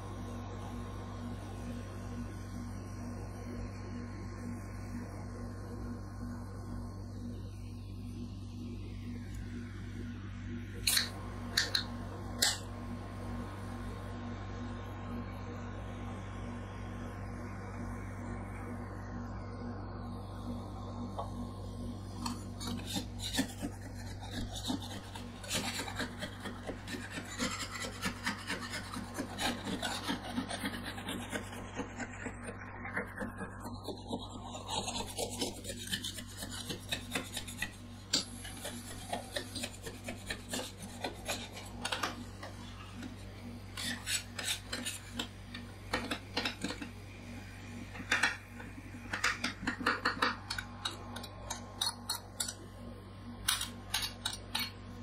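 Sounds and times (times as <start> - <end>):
low steady hum: 0.0 - 55.0
metal scrapers scraping cold plate: 43.8 - 45.3.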